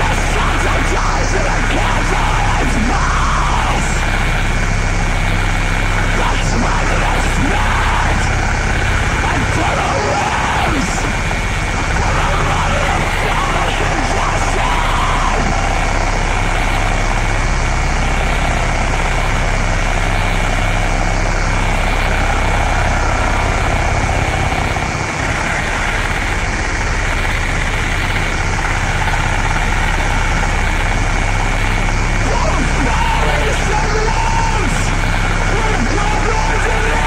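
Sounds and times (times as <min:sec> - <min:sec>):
thin high whine: 0:00.0 - 0:27.2
distorted static: 0:00.0 - 0:37.0
steady low rumble: 0:00.0 - 0:37.0.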